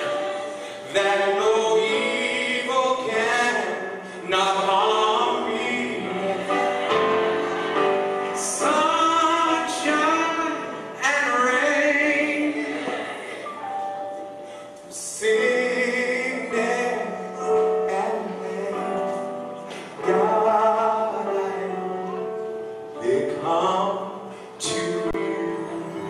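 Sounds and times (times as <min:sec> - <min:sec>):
gospel choir singing: 0:00.0 - 0:13.8.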